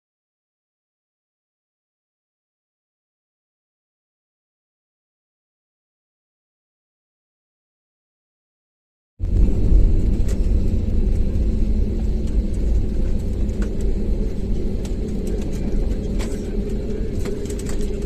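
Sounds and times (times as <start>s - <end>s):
deep rumble of engines and wheels: 9.2s - 18.0s.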